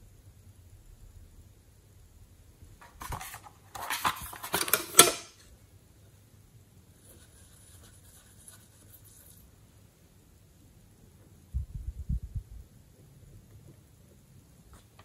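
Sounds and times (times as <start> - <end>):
plastic case clicking: 3.0 - 5.4
plastic case snapping shut: 3.0 - 5.4
brush scratching eyeshadow: 7.0 - 9.5.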